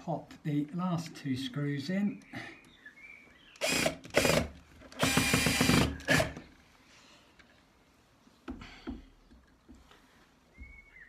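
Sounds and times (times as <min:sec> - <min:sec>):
cordless drill driving screws: 0:03.6 - 0:06.4.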